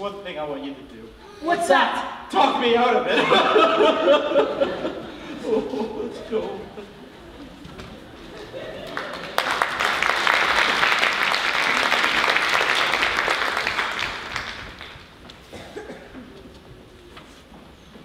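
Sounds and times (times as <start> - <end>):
audience applauding: 8.1 - 15.3.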